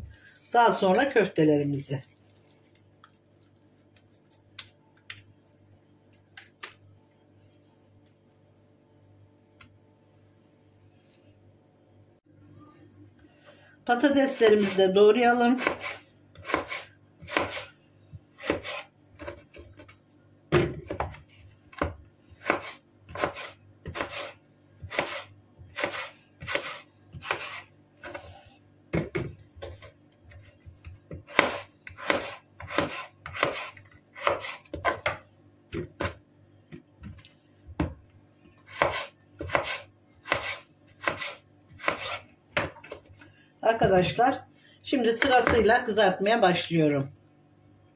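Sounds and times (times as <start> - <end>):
knife cutting potato on board: 15.6 - 17.7, 18.4 - 19.9, 20.8 - 28.4, 29.0 - 35.2, 38.6 - 43.0.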